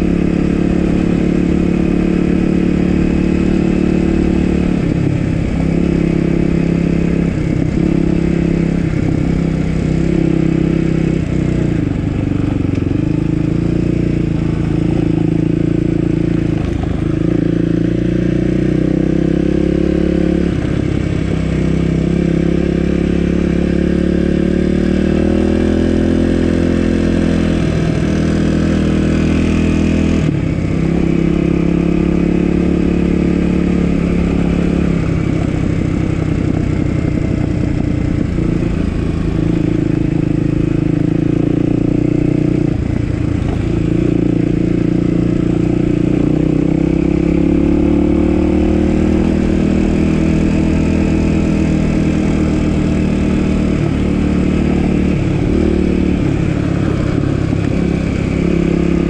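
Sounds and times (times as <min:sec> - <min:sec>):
dirt bike engine revving: 0:21.6 - 0:59.0.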